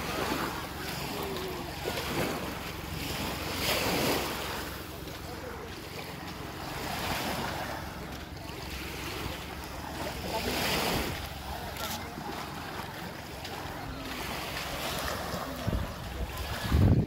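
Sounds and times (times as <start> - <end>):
surf washing onto beach: 0.0 - 17.0
wind buffeting microphone: 14.6 - 17.0.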